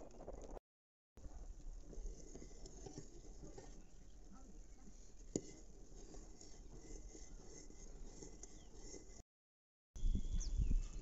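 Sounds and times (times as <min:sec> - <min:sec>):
pot bubbling over fire: 0:01.2 - 0:09.2.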